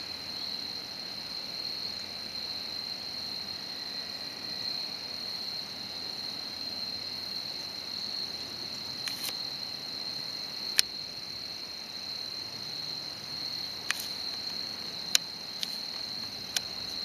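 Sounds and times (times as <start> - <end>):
insect chorus drone: 0.0 - 17.0
sharp clicks: 15.1 - 17.0.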